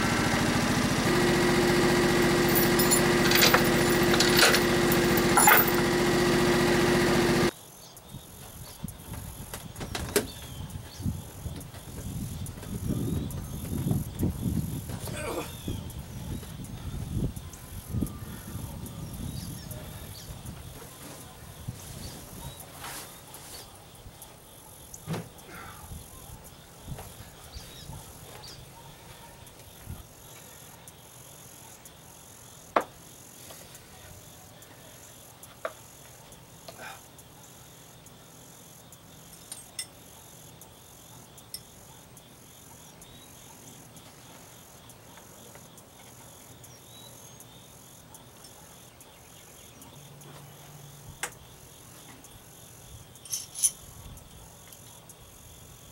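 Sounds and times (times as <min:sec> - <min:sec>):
insects chirping: 0:07.5 - 0:55.9.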